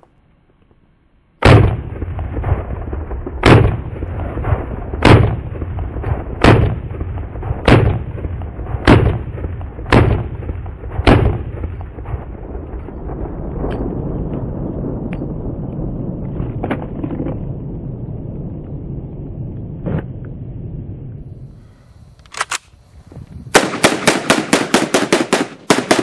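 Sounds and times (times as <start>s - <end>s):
gunshots: 1.4s - 13.2s, 23.5s - 26.0s.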